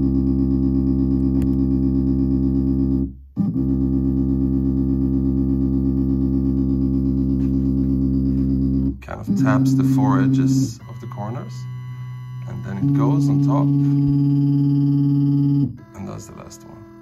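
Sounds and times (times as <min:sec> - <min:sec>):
music held chord: 0:09.3 - 0:11.7, 0:12.4 - 0:17.0.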